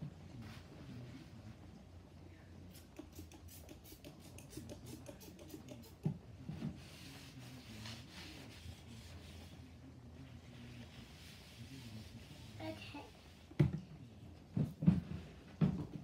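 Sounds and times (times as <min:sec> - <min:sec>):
spray bottle squirting: 0:02.7 - 0:06.0
surface being wiped: 0:03.5 - 0:09.7, 0:10.3 - 0:13.5.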